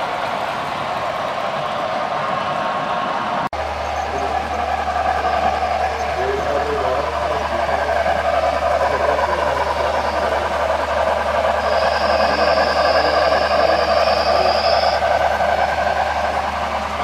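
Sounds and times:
model train wheels rumbling: 0:00.0 - 0:17.0
thin high tone: 0:03.6 - 0:17.0.

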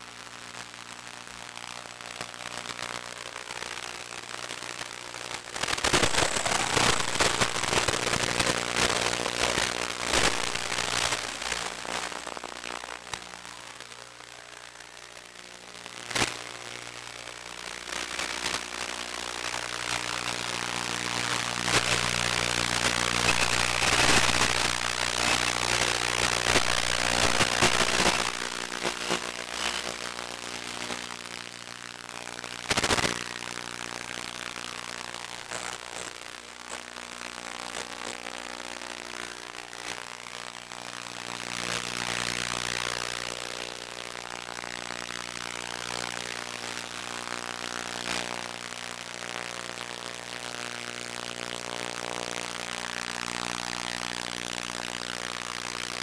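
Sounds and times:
steady electrical buzz: 0:00.0 - 0:56.0.

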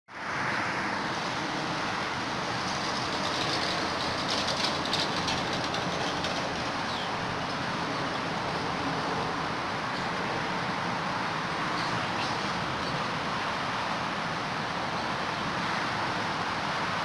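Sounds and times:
steady rushing noise: 0:00.2 - 0:17.0
faint fine clicking patter: 0:02.6 - 0:07.7.

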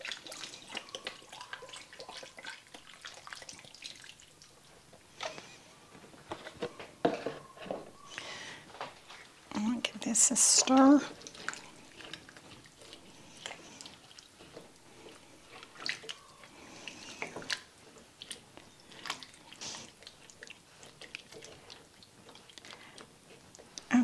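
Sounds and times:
spatula stirring soup in pot: 0:00.0 - 0:24.0.

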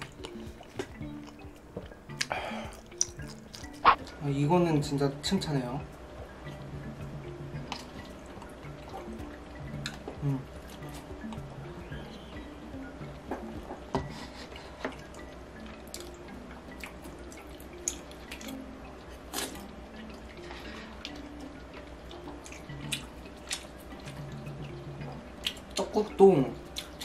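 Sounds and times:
quiet plucked background music: 0:00.0 - 0:27.0
chopsticks and spoon clicking: 0:02.1 - 0:04.0
wet chewing and slurping: 0:02.1 - 0:04.0, 0:19.3 - 0:21.2.

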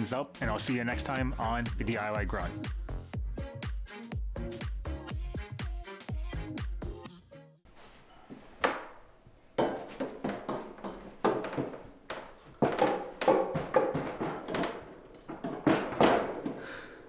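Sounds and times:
wire shelving knocks and rattles: 0:09.6 - 0:16.6.

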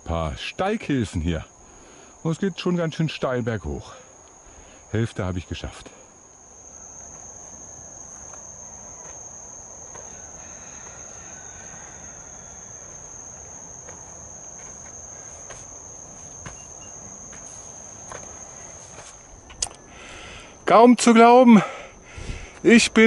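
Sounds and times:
high-pitched insect trill: 0:00.0 - 0:23.0
footsteps scuffing: 0:07.0 - 0:09.3, 0:13.8 - 0:19.3.

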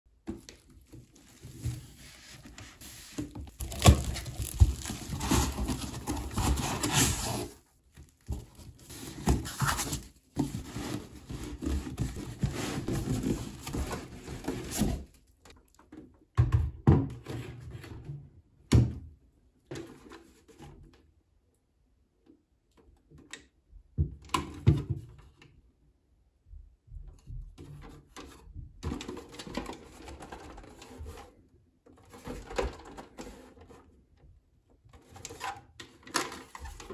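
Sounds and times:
cardboard rustling: 0:00.3 - 0:15.1
plastic stretch wrap crinkling: 0:00.4 - 0:07.2
box thuds: 0:03.5 - 0:07.0.

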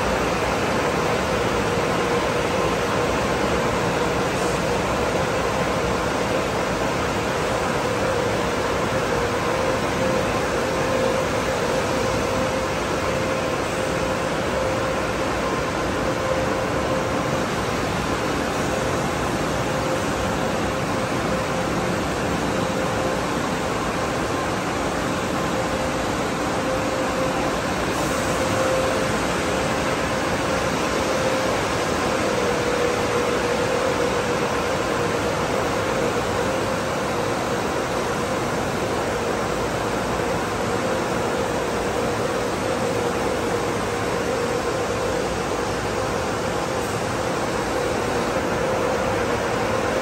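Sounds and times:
car wash machinery rushing: 0:00.0 - 0:50.0
constant hum: 0:00.0 - 0:50.0.

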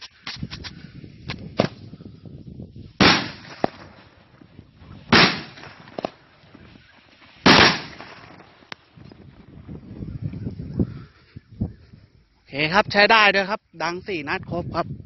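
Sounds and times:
sharp firework pops: 0:00.0 - 0:01.9, 0:03.0 - 0:06.6, 0:07.4 - 0:09.1
loud firework bangs: 0:03.0 - 0:06.7, 0:07.4 - 0:08.7.

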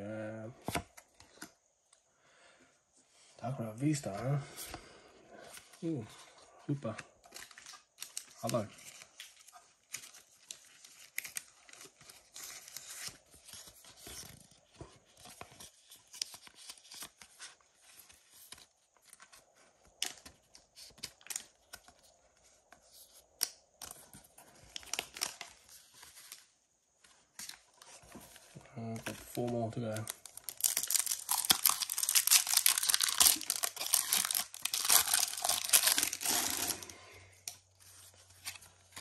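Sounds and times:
cards shuffling and rustling: 0:00.6 - 0:01.6, 0:05.4 - 0:39.0.

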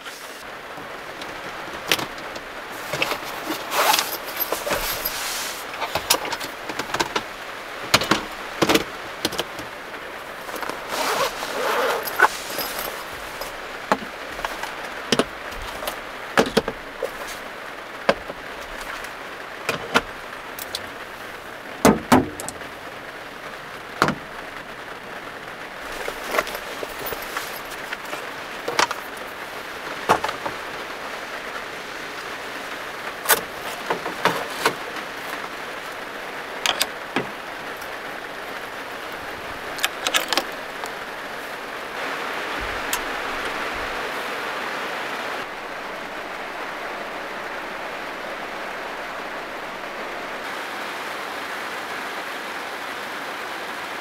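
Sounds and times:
rain on a van roof: 0:00.0 - 0:54.0
sharp clicks and knocks: 0:05.8 - 0:07.3, 0:07.9 - 0:09.7, 0:30.0 - 0:30.6.

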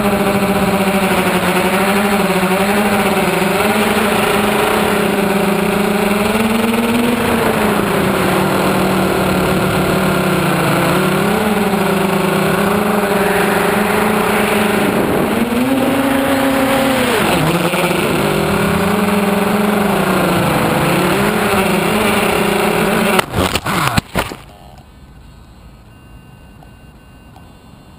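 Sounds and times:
drone motors and propellers buzzing: 0:00.0 - 0:27.9
drone crashing into grass: 0:23.0 - 0:24.5.

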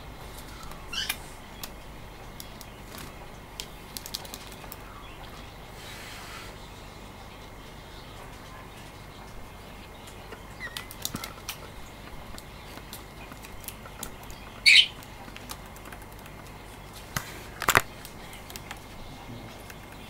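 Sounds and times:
bird chirp: 0:00.0 - 0:17.2, 0:17.8 - 0:20.0
bird wings flapping: 0:02.4 - 0:04.9, 0:10.7 - 0:20.0.

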